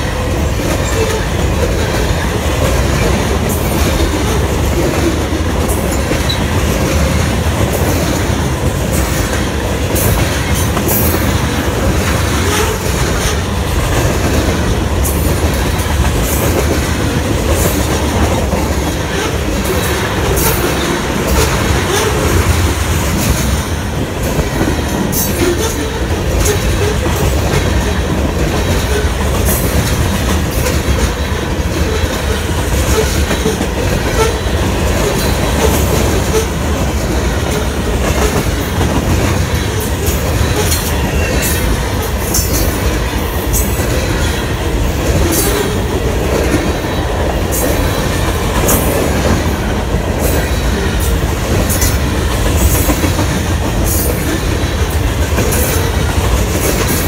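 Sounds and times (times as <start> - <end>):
train wheels rumbling on rail: 0.0 - 57.0.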